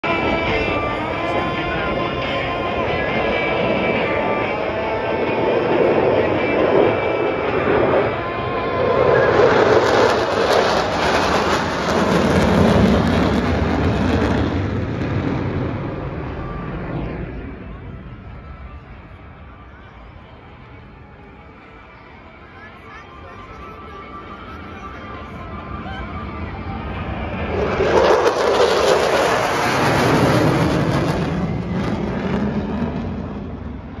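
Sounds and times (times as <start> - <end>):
jets roaring overhead: 0.0 - 34.0.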